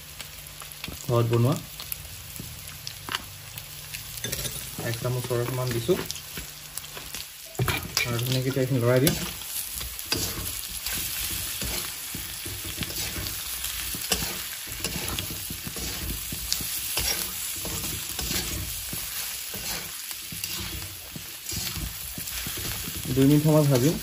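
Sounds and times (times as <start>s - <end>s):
meat sizzling in oil: 0.0s - 24.0s
metal spatula scraping pan: 7.6s - 24.0s.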